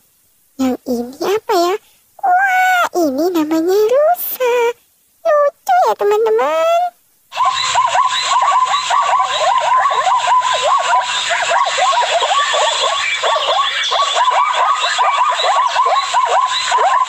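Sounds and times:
chorus of animal calls: 7.3 - 17.0.

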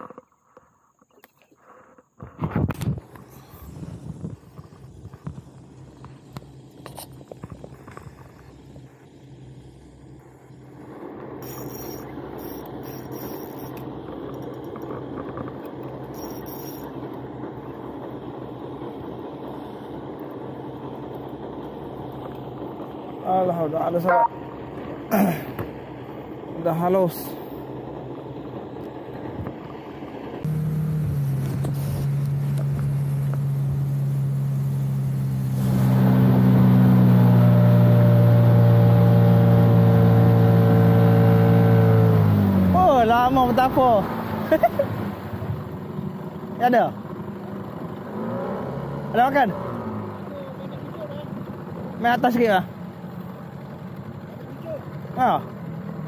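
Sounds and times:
outboard motor running: 0.0 - 56.0
fishing reel being cranked: 11.4 - 17.0.

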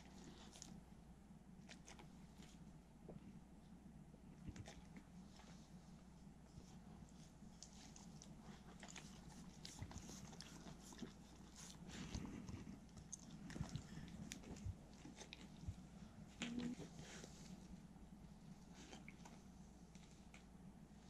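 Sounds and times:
dogs chewing and lip-smacking: 1.6 - 2.7, 4.4 - 5.8, 6.6 - 16.8, 18.6 - 20.5.

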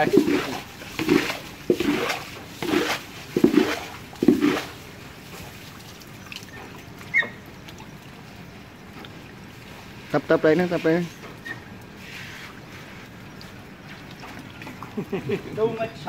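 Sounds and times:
dog digging in muddy water: 0.0 - 8.0
trickling water: 0.0 - 16.0.

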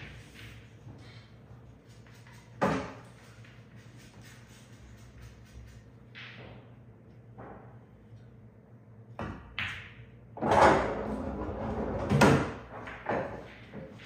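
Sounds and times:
pool balls knocking: 0.0 - 0.9, 9.2 - 14.0.

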